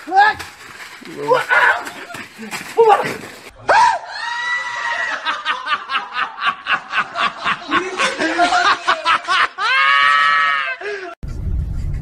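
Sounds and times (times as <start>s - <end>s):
people laughing: 4.6s - 11.2s.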